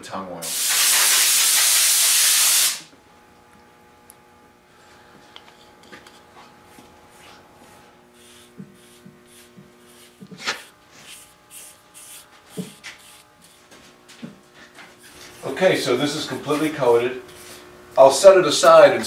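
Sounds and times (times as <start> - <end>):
brush swishing on wood: 6.7 - 14.0.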